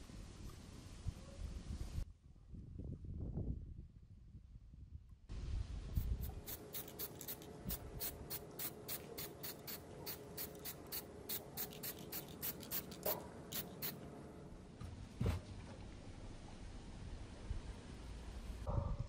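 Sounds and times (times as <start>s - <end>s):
spray can hissing bursts: 6.0s - 14.0s.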